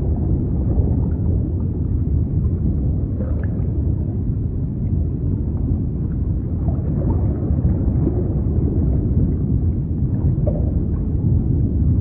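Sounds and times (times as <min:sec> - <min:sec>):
deep rumbling wash of water: 0:00.0 - 0:12.0.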